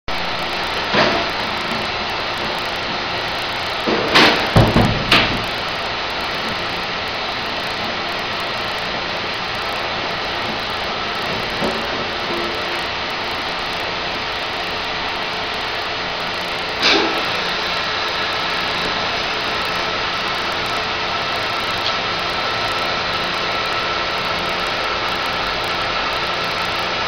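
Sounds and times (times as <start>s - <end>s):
machinery running: 0.1s - 27.0s
machinery knocks and clunks: 3.7s - 5.8s.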